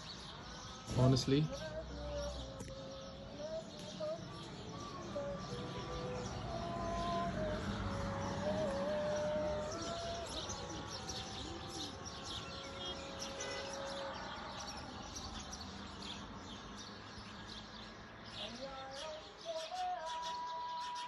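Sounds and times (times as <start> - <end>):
small birds chirping: 0.0 - 21.0.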